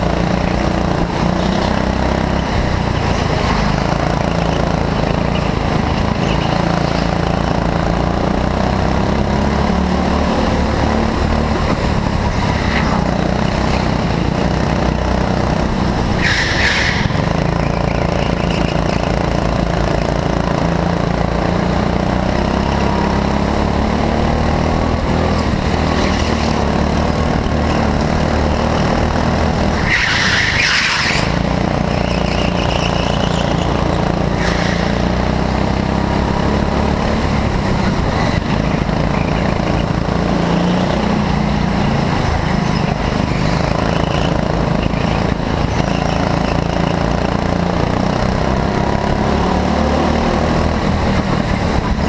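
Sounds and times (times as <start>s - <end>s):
go-kart engine running: 0.0s - 52.0s
tyre squeals: 16.2s - 19.1s, 29.8s - 33.8s.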